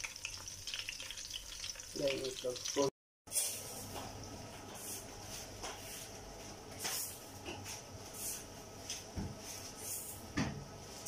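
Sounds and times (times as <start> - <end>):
fritters sizzling in oil: 0.0 - 5.9.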